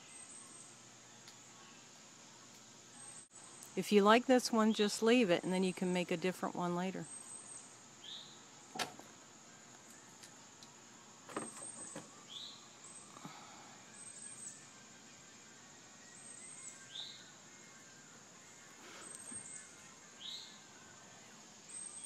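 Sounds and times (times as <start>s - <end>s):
high insect drone: 0.0s - 22.0s
bird chirping: 2.9s - 8.7s, 11.3s - 22.0s.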